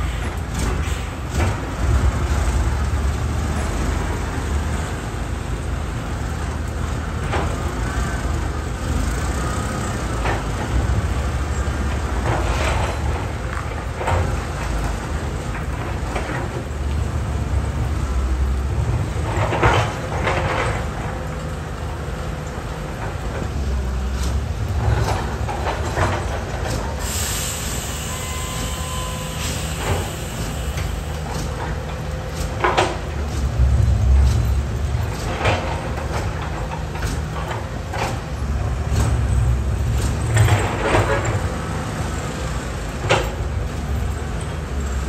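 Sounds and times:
excavator diesel engine rumble: 0.0 - 45.0.

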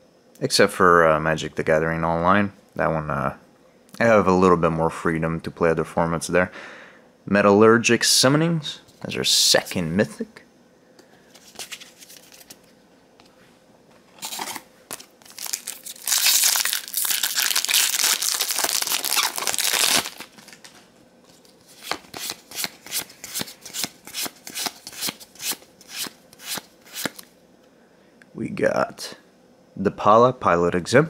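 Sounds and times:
card pack crinkling: 11.3 - 12.7, 14.2 - 20.8.

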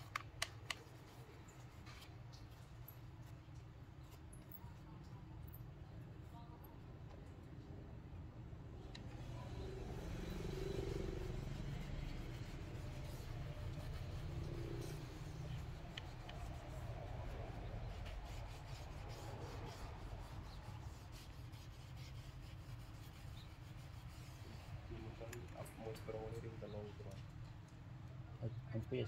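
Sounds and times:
rubbing and scraping: 9.0 - 27.2.

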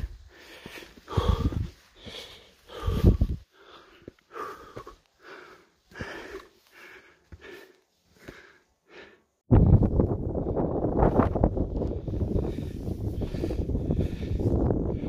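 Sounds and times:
person breathing heavily: 0.0 - 9.5, 12.0 - 15.0
wind buffeting microphone: 1.1 - 1.8, 2.7 - 3.4, 9.5 - 15.0.

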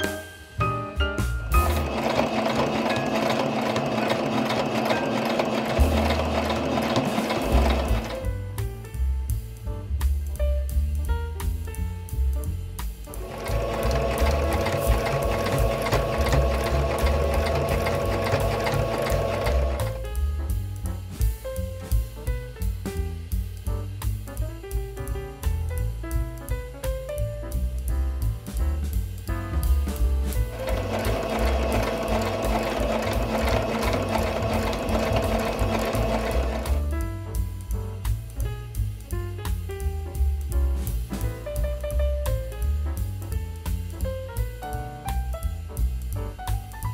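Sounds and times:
sewing machine stitching: 1.6 - 8.3, 13.2 - 20.1, 30.3 - 37.0.

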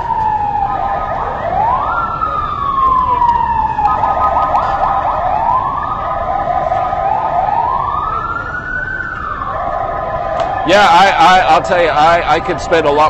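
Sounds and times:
city street traffic: 0.0 - 13.0
siren wailing: 0.0 - 13.0.

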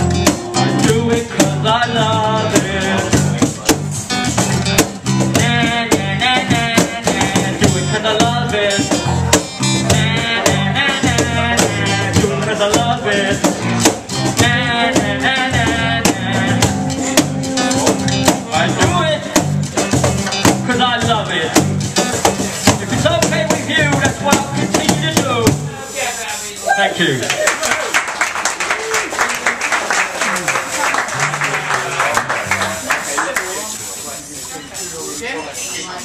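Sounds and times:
wordless lead vocal: 0.0 - 3.6, 4.5 - 19.8, 22.6 - 25.8
bass line: 0.0 - 25.8
box drum played by hand: 0.0 - 26.0
acoustic guitar strumming: 0.0 - 26.6, 30.7 - 35.9.

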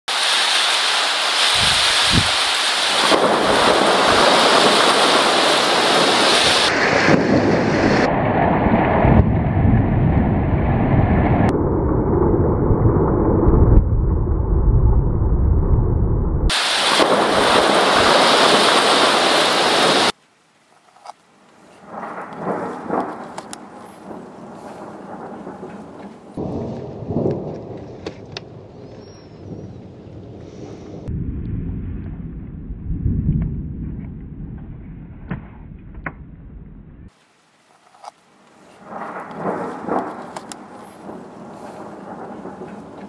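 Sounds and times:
heavy rain downpour: 0.1 - 9.3, 16.5 - 28.1, 37.1 - 43.0
thunder rumbling: 1.4 - 20.1, 21.8 - 37.2, 38.8 - 43.0.

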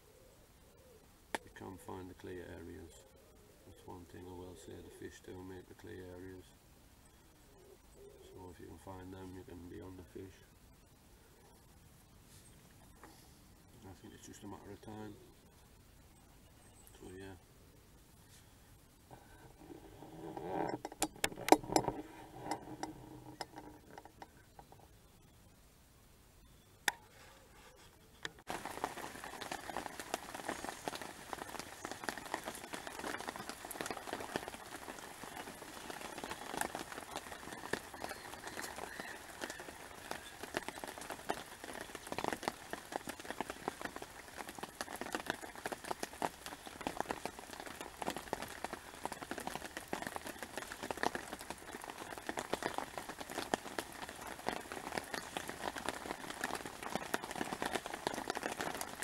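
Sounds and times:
rain pattering: 1.3 - 3.0, 3.7 - 6.6, 8.4 - 10.5, 13.8 - 15.2, 19.1 - 24.7, 28.4 - 59.0.

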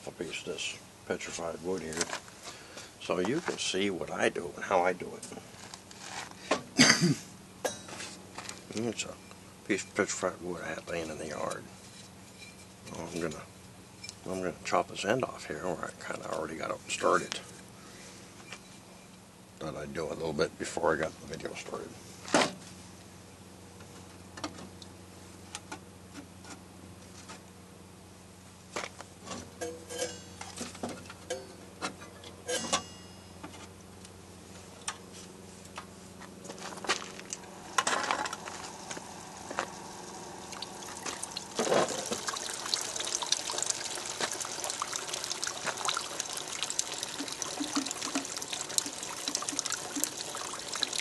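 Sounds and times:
coolant water hissing and spattering: 38.4 - 51.0.

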